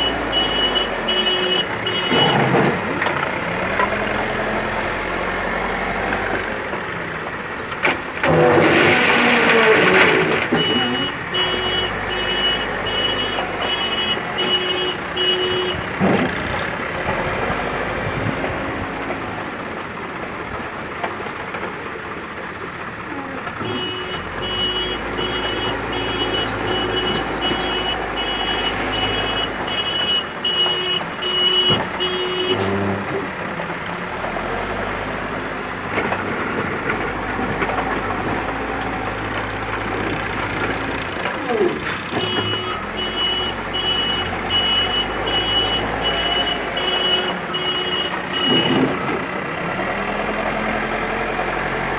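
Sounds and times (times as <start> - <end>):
reversing alarm beeping: 0.0 - 3.0, 10.5 - 15.9, 23.6 - 32.7, 42.2 - 49.0
diesel engine running: 0.0 - 51.9.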